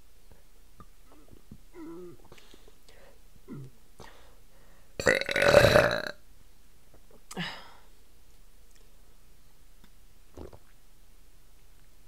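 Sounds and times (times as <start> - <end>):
woman burping loudly: 5.0 - 6.2.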